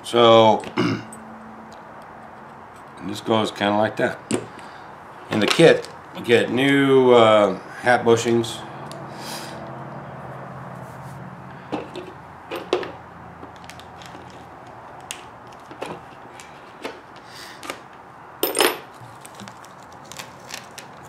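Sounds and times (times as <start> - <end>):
tools clattering: 18.4 - 19.0.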